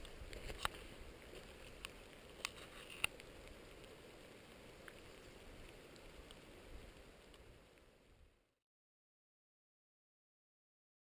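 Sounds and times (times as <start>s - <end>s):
raindrops ticking on camera: 0.0s - 8.2s
light rain hiss: 0.0s - 8.6s.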